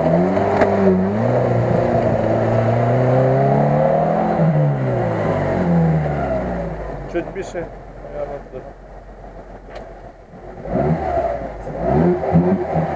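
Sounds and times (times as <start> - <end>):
engine revving under load: 0.0 - 7.5, 10.4 - 12.9.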